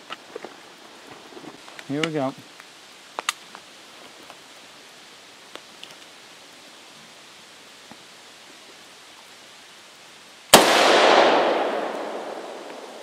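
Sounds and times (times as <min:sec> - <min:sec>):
rifle shot echoing: 0:10.5 - 0:13.0.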